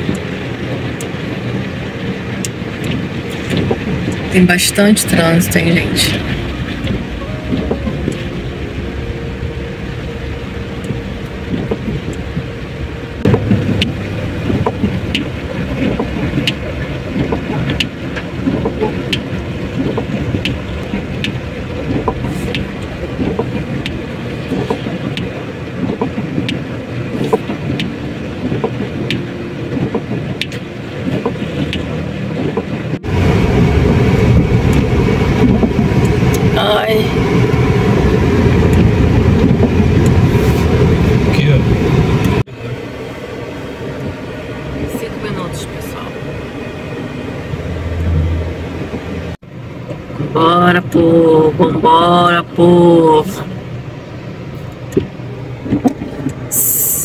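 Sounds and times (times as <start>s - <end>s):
rain ticking on windshield: 0.0s - 46.0s
car road and engine noise: 0.0s - 57.0s
tyres on wet asphalt: 0.0s - 57.0s.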